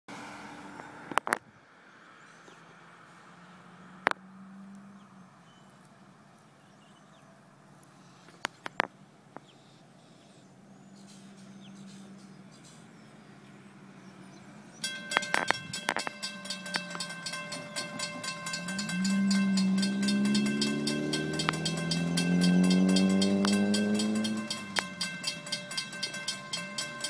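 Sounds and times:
distant low hum: 10.8 - 27.0.

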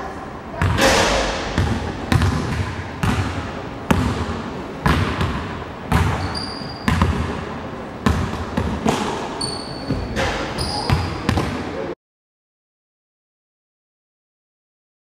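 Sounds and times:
basketball bouncing on wooden floor: 1.5 - 7.4, 8.0 - 9.2, 9.8 - 11.6
sneakers squeaking on floor: 1.5 - 11.7.

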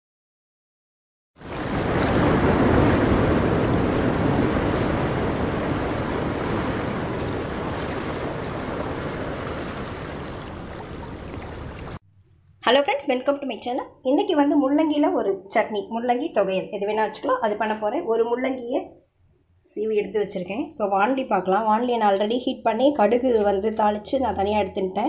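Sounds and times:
ocean waves rushing: 1.4 - 12.0.

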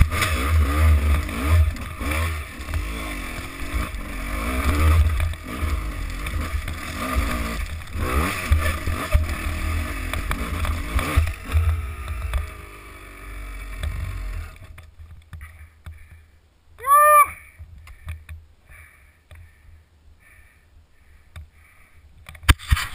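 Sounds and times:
dirt bike engine revving: 0.0 - 14.7
short loud cry: 16.8 - 17.5
clicks and scrapes: 22.2 - 22.9.

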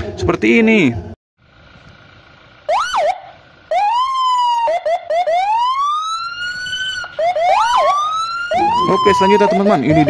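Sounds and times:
police siren: 2.6 - 10.0.

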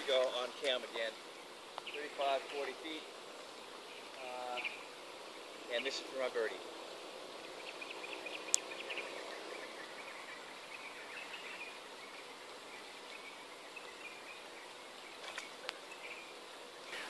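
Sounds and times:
insects chirping in trills: 0.0 - 17.0
faint ticks: 8.5 - 8.7.

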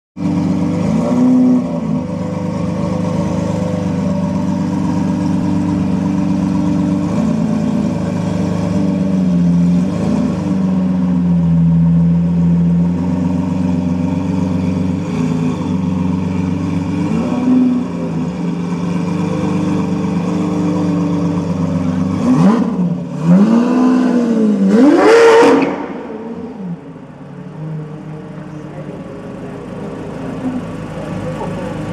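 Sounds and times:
car engine idling: 0.2 - 31.9
engine revving hard: 22.0 - 26.8.

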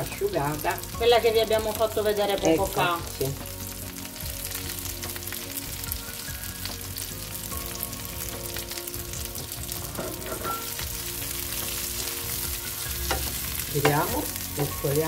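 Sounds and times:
slices sizzling in frying pan: 0.0 - 15.0.

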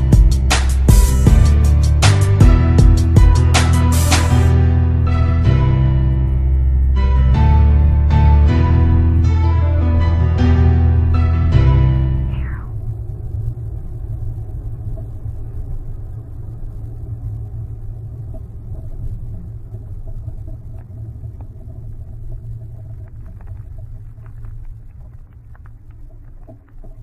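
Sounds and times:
engine and tyres rumbling: 0.0 - 27.0
faint clicks and ticks: 13.3 - 27.0.

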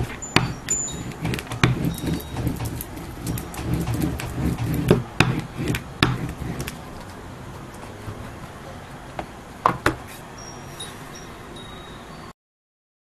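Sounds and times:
spoon rubbing over paper: 0.0 - 6.8.

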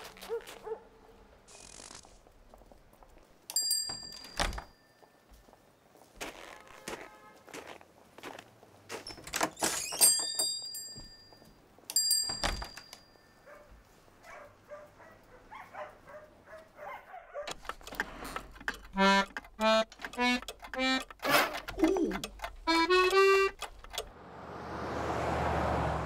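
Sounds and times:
small bell ringing: 3.5 - 5.0, 9.9 - 13.5
accordion short notes: 18.8 - 24.0.

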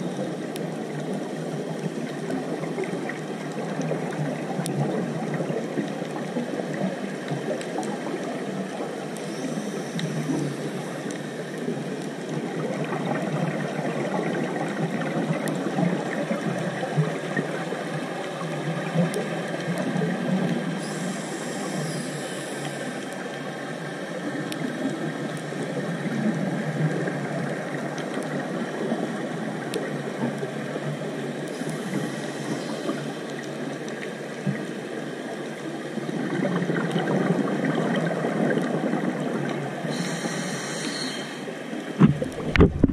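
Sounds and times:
muffled underwater rush: 0.0 - 42.9
faint clicks: 0.3 - 8.3, 9.1 - 12.9, 26.9 - 34.7
higher hissing: 39.9 - 41.5.

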